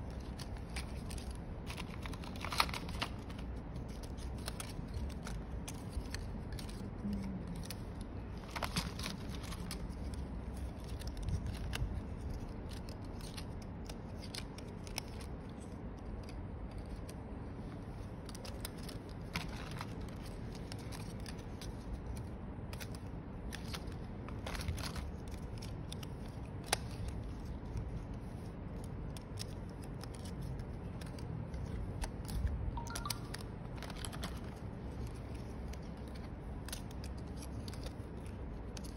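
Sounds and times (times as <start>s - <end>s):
small plastic parts rattling: 0.0s - 17.2s
low background noise: 0.0s - 38.9s.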